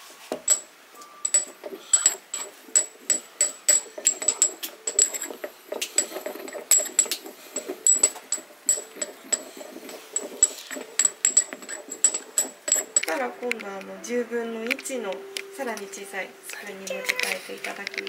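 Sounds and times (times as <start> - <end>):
pestle clinking in porcelain mortar: 1.2 - 13.6.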